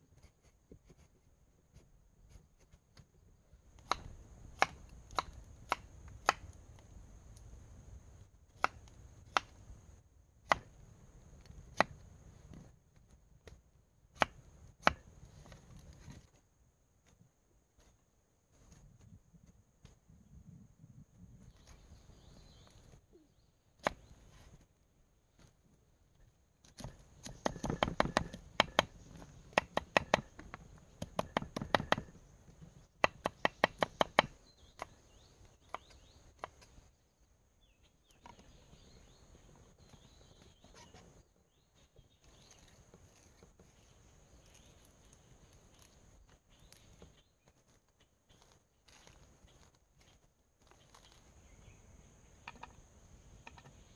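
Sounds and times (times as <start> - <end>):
knife chopping on wooden board: 26.8 - 28.9, 29.5 - 30.4.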